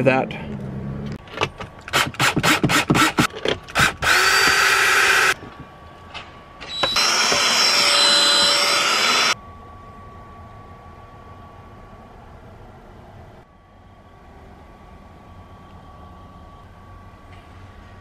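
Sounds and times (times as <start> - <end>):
drill motor whirring: 1.9 - 5.4, 6.7 - 9.4.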